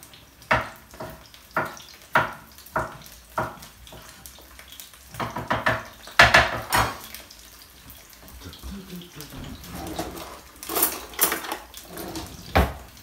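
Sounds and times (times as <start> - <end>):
knife chopping on wooden board: 0.5 - 4.1.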